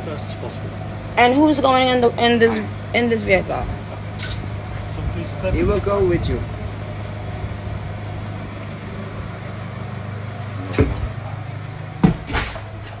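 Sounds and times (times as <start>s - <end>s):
van engine idling: 0.0s - 13.0s
knocks and thumps in van: 12.0s - 13.0s.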